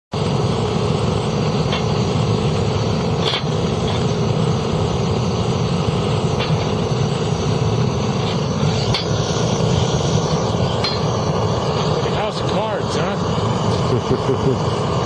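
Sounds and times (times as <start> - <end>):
propane torch burning: 0.1 - 15.0.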